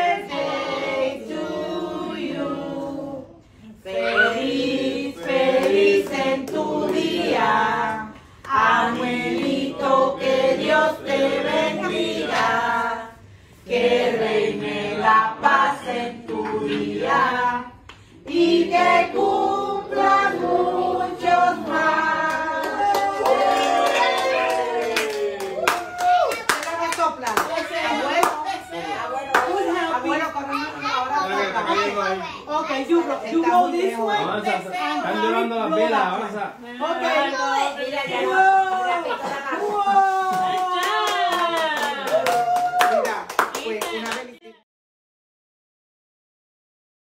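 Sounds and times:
adults and children singing: 0.0 - 24.8, 36.9 - 41.2.

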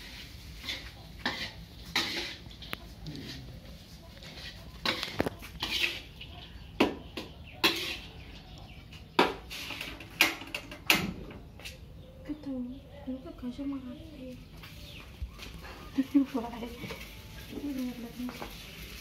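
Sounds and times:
metal spatula clattering in a wok: 0.6 - 2.7, 4.8 - 6.1, 7.2 - 8.1.

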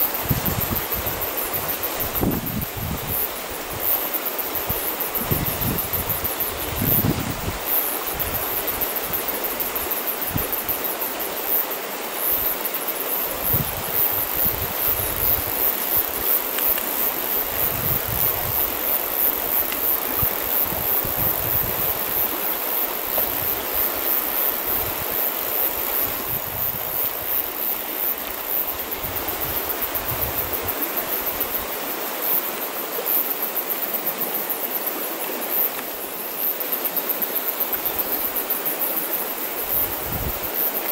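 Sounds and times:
wind buffeting microphone: 0.2 - 3.8, 4.7 - 9.2, 13.3 - 16.2, 17.4 - 22.4, 26.0 - 27.3
grass brushing microphone: 4.6 - 10.8, 13.2 - 30.8.

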